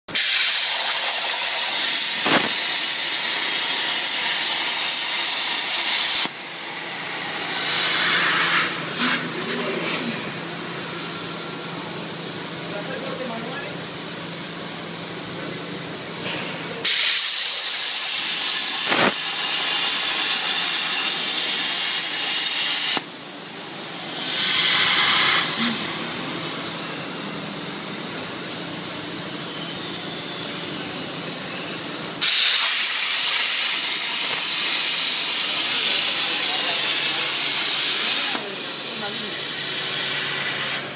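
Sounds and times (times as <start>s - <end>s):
plasma torch hissing: 0.2s - 10.4s, 15.8s - 40.9s.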